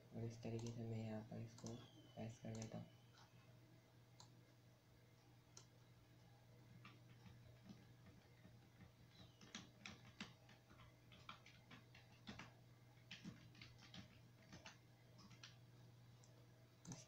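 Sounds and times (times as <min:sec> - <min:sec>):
low steady hum: 0:00.0 - 0:17.0
mouse and keyboard clicks: 0:01.4 - 0:03.3, 0:06.8 - 0:15.6, 0:16.2 - 0:17.0.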